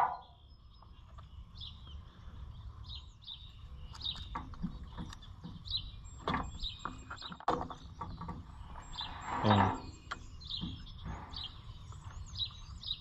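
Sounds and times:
low wind rumble: 0.0s - 7.1s
birds chirping: 0.0s - 13.0s.

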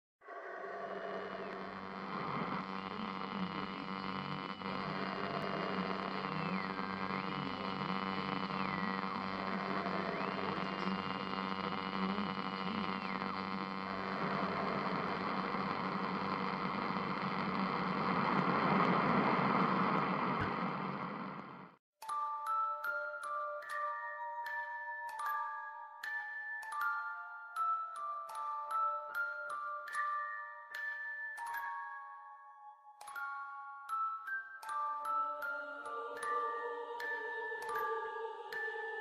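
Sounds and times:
droning held tones: 0.4s - 21.7s, 35.4s - 39.0s.

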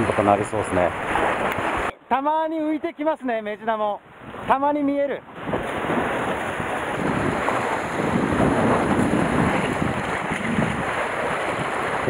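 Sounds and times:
sea waves splashing on concrete: 0.0s - 2.0s, 4.2s - 12.0s
wind buffeting microphone: 5.2s - 12.0s.

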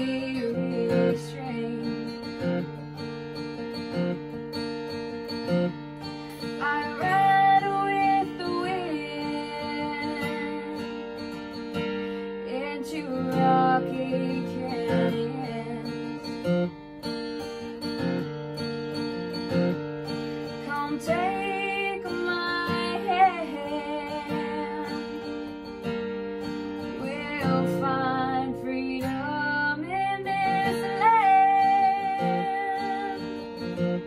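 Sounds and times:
person singing: 0.0s - 2.2s, 12.5s - 16.0s, 27.0s - 33.4s
acoustic guitar song: 0.0s - 34.0s.

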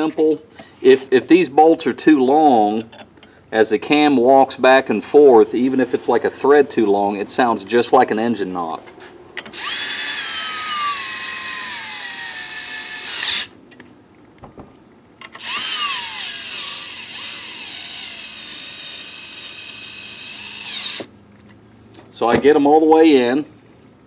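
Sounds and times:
cordless drill whining: 9.5s - 13.6s, 15.3s - 21.1s.

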